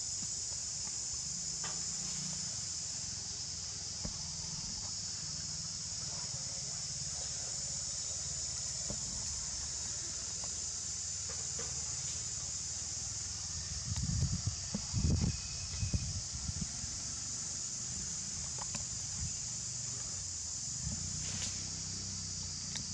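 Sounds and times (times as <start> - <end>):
insects droning: 0.0 - 22.9.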